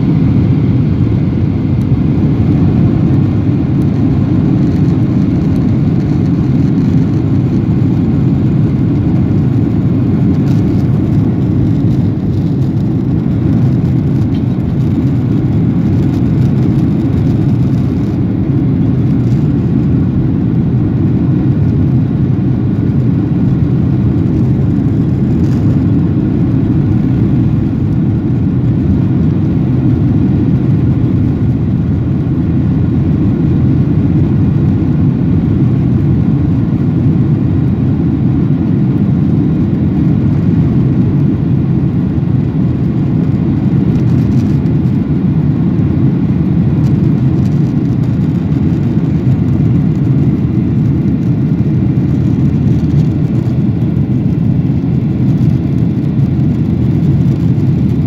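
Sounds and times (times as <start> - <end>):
jet engines rumbling in cabin: 0.0 - 58.0.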